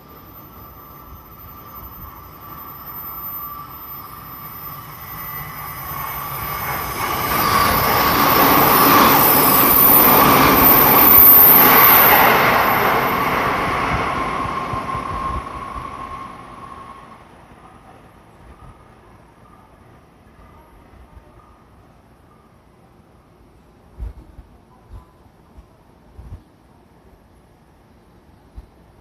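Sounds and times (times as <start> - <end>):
steady high tone: 0.0 - 18.2
electric train passing: 0.0 - 24.0.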